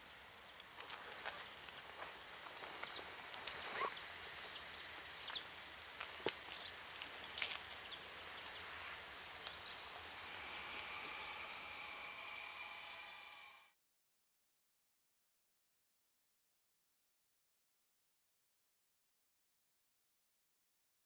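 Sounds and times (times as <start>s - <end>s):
train brakes squealing: 9.2s - 13.8s.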